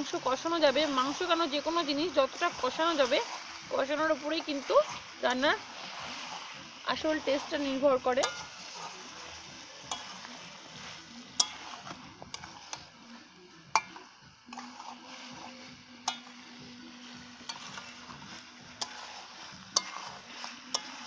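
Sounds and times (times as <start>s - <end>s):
chicken sizzling in a pan: 0.0s - 21.0s
metal spatula clinking on pan: 8.1s - 8.9s, 9.8s - 10.5s, 11.4s - 12.8s, 13.8s - 15.0s, 16.0s - 16.6s, 17.4s - 18.2s, 18.8s - 21.0s.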